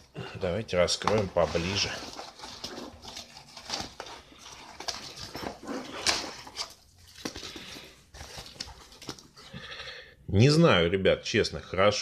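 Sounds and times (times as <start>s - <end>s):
nylon vest rustling and scraping: 0.9s - 9.5s.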